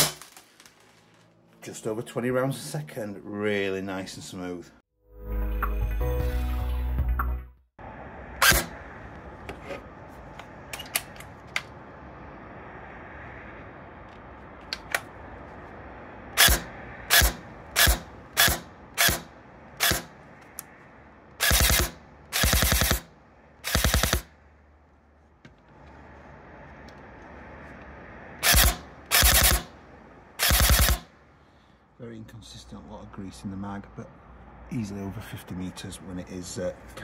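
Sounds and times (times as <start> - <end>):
airsoft gun shots: 16.4 - 20.1, 21.4 - 24.3, 28.4 - 29.7, 30.4 - 31.1.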